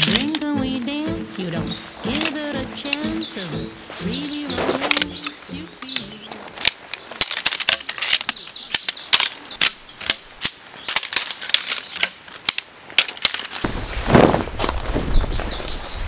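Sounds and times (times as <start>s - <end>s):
metal poles clicking together: 0.0s - 0.6s, 4.6s - 13.6s.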